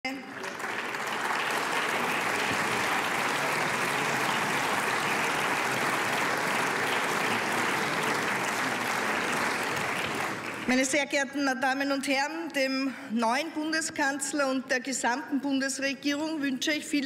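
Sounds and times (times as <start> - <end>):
crowd applauding: 0.1 - 10.9.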